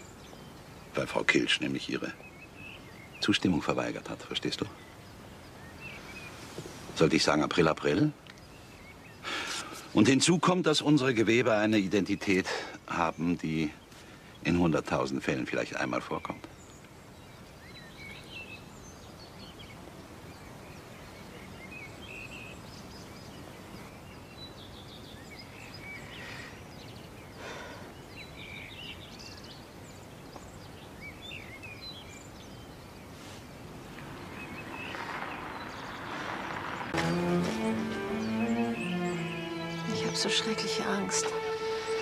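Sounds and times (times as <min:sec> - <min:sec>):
outdoor background hiss: 0:00.0 - 0:42.0
songbirds chirping: 0:00.0 - 0:42.0
music: 0:37.0 - 0:42.0.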